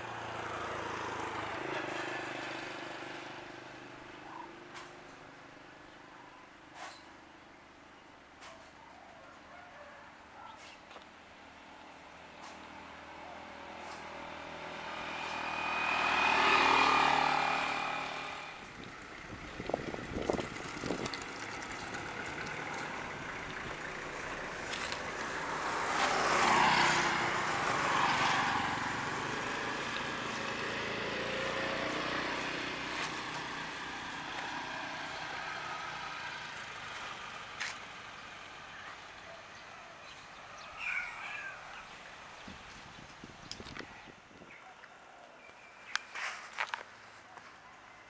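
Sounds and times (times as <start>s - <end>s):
scooter engine passing: 0.0s - 5.1s, 12.1s - 43.0s
tyre noise on road: 10.5s - 39.3s, 40.0s - 44.5s, 45.4s - 47.6s.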